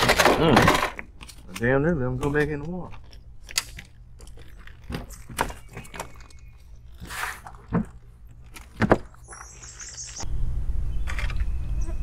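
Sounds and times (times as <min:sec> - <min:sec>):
high chirps: 0:09.2 - 0:12.0.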